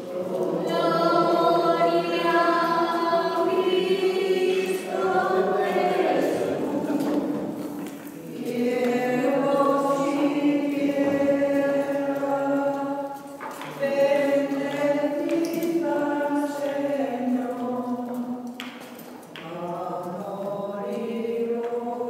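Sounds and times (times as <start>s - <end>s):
congregation singing a hymn: 0.0s - 22.0s.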